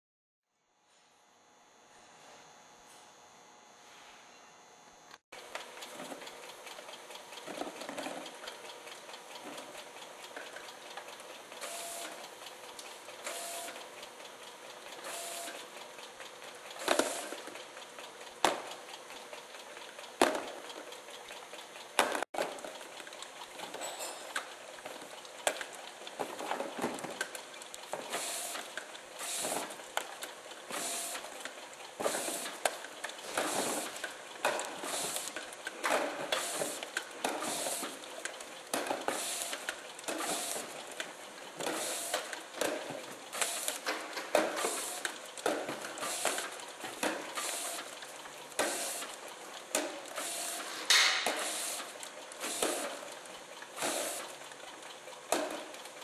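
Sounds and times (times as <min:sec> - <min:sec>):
labeling machine clattering: 0:22.0 - 0:56.0.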